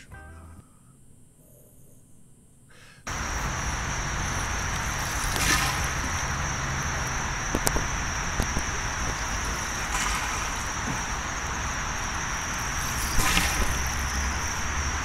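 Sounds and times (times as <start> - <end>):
constant high drone: 3.1 - 15.0.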